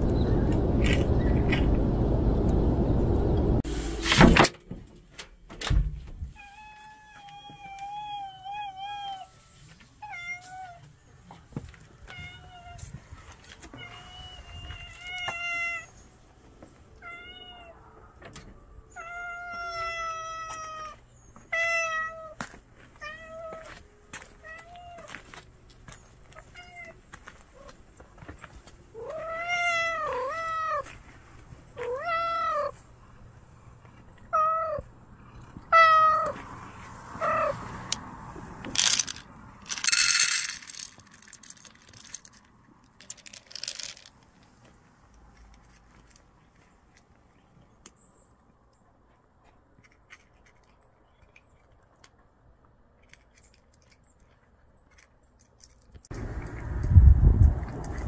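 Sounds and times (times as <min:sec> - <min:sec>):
cat meowing: 0:34.3 - 0:34.9, 0:35.7 - 0:36.4, 0:37.2 - 0:37.6
dry cat food poured into bowl: 0:38.8 - 0:42.4, 0:43.0 - 0:44.4.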